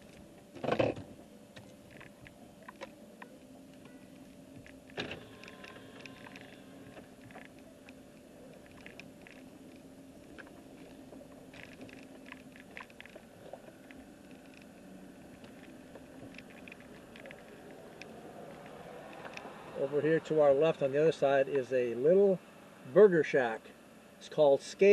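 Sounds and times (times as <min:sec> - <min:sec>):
small clicks and rattles: 0:00.0 - 0:19.8
engine and road hum: 0:00.0 - 0:24.2.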